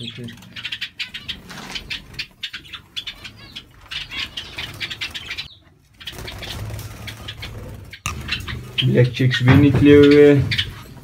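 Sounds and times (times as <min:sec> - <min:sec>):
birds fluttering wings: 0:03.7 - 0:11.0.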